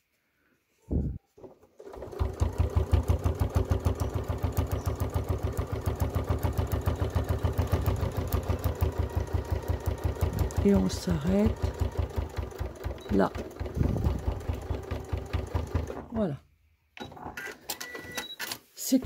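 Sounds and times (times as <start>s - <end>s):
electric sewing machine running: 1.8s - 16.1s.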